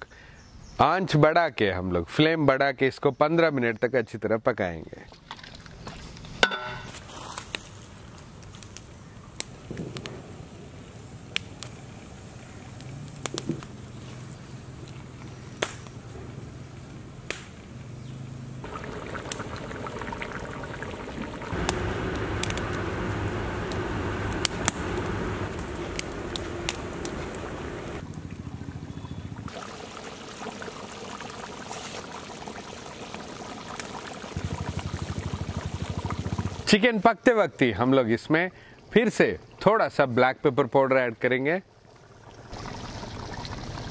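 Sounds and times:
wood fire crackling and popping: 0:11.3 - 0:11.8, 0:12.8 - 0:13.8, 0:14.8 - 0:16.0, 0:17.3 - 0:17.7, 0:18.6 - 0:28.0, 0:31.1 - 0:36.6
gravy bubbling hard: 0:18.6 - 0:28.0, 0:29.4 - 0:36.7, 0:41.9 - 0:43.9.

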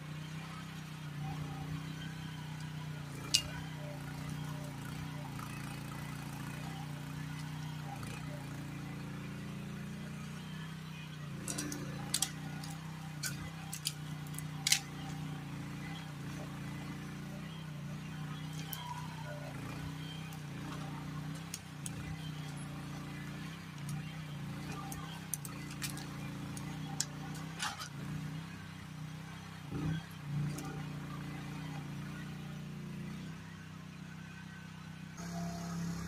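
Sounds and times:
excavator engine droning: 0:00.0 - 0:36.0
sharp snaps and clicks: 0:11.4 - 0:15.3, 0:19.8 - 0:28.0.

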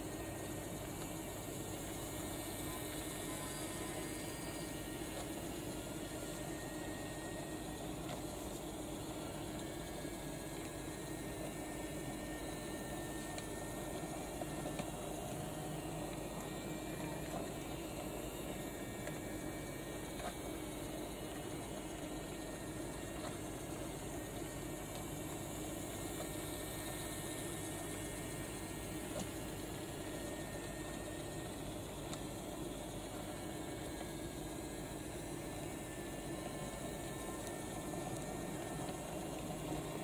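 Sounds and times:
toy train motor hum: 0:00.0 - 0:40.0
toy train electric motor running: 0:02.1 - 0:15.5.

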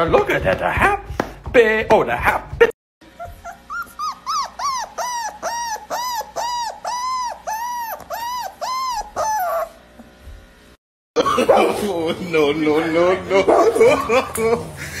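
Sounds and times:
dog whining: 0:03.0 - 0:09.9.

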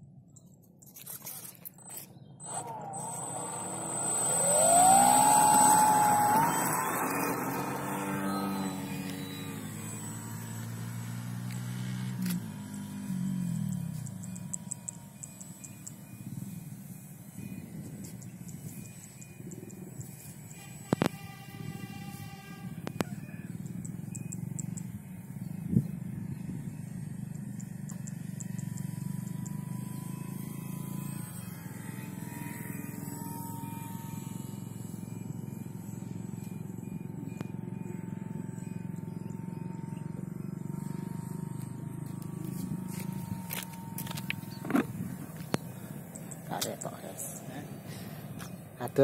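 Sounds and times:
birds chirping: 0:00.3 - 0:11.7, 0:23.0 - 0:31.1, 0:34.9 - 0:49.0
model plane motor whine: 0:00.9 - 0:49.0.

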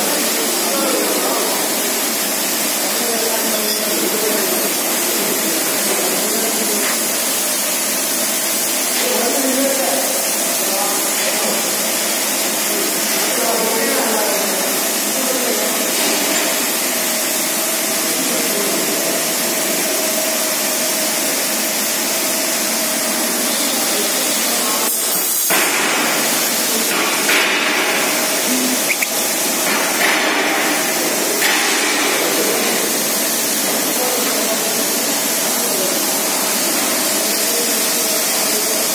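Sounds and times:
loud rushing workshop noise: 0:00.0 - 0:38.9.

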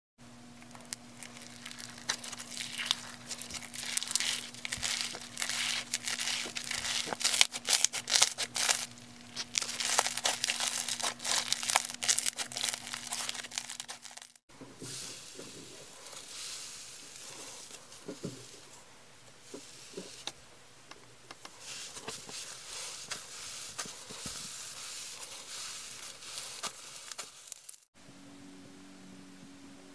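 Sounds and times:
slime crackling and popping: 0:00.6 - 0:14.4, 0:26.0 - 0:27.9.

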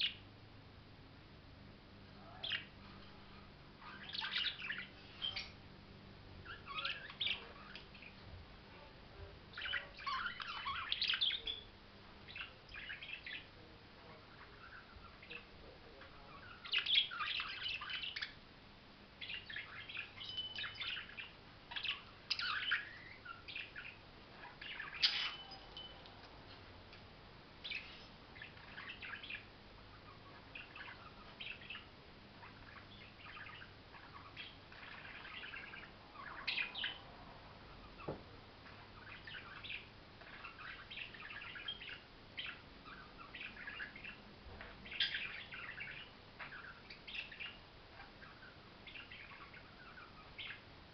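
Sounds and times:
budgerigars chirping: 0:00.0 - 0:00.3, 0:02.2 - 0:05.6, 0:06.4 - 0:08.4, 0:09.2 - 0:18.4, 0:19.2 - 0:26.6, 0:27.6 - 0:50.7.

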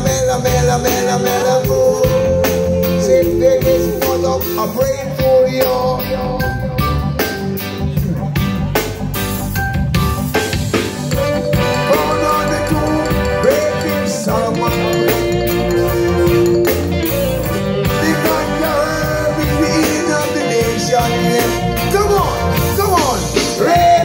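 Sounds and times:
live reggae band playing: 0:00.0 - 0:24.0
vocalists singing gliding notes: 0:11.2 - 0:24.0.

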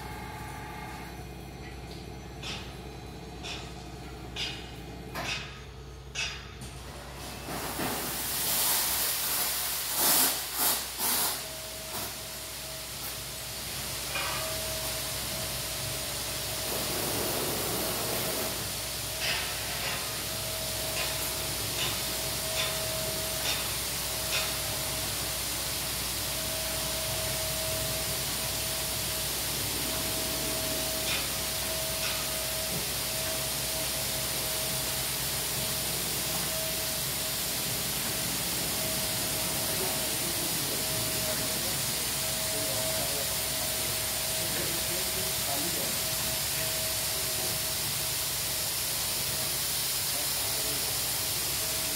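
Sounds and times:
mechanical whine: 0:00.0 - 0:06.6, 0:14.1 - 0:47.6
water jets hissing: 0:07.7 - 0:12.2, 0:16.2 - 0:51.9.

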